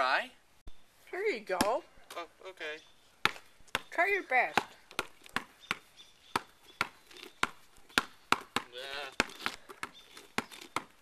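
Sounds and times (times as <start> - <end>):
basketball bouncing on asphalt: 3.2 - 11.0.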